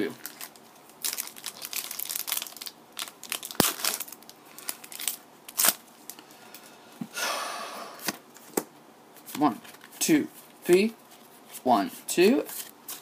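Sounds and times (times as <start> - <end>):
foil wrapper crinkling: 0.2 - 6.2.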